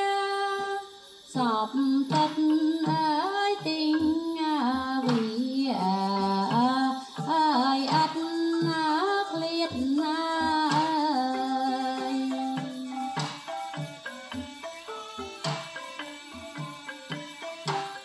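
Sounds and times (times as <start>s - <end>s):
high sliding melody: 8.2s - 18.0s.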